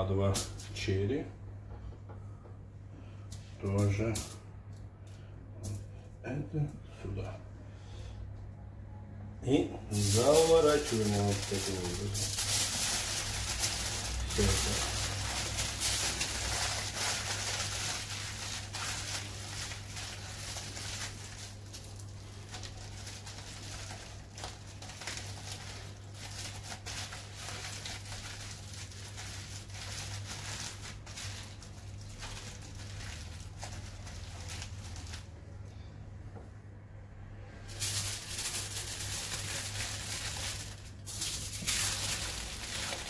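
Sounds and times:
steady low hum: 0:00.0 - 0:43.0
aluminium foil crinkling: 0:09.9 - 0:35.4, 0:37.7 - 0:43.0.

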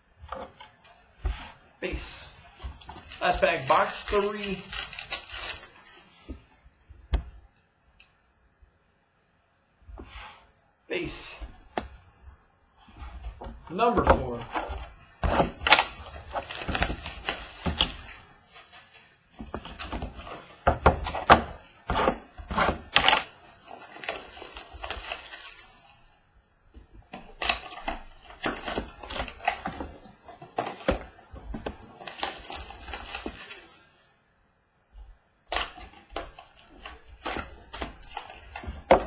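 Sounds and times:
foil packs rustling and crinkling: 0:01.9 - 0:06.3, 0:14.2 - 0:26.2, 0:27.0 - 0:34.0, 0:35.5 - 0:39.0.

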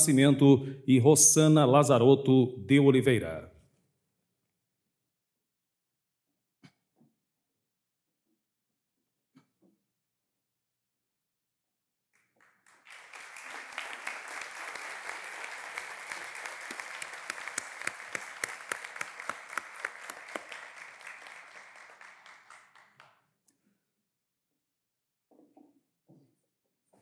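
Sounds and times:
audience applauding: 0:12.2 - 0:23.2.

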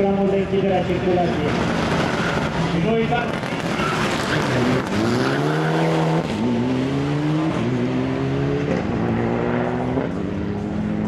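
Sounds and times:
rally car engine accelerating: 0:03.3 - 0:11.0.

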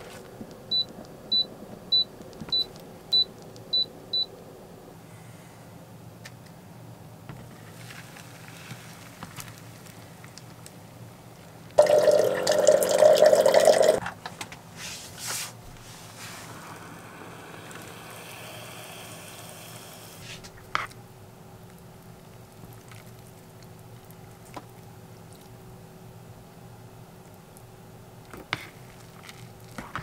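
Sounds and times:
rushing noise with hum: 0:15.0 - 0:20.6.

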